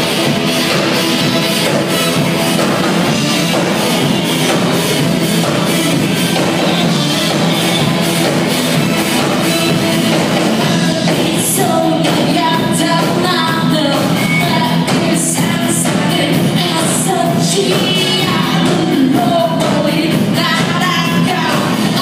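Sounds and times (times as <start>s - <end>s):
bass guitar: 0.0s - 22.0s
drum kit: 0.0s - 22.0s
electric guitars: 0.0s - 22.0s
person singing: 9.4s - 22.0s.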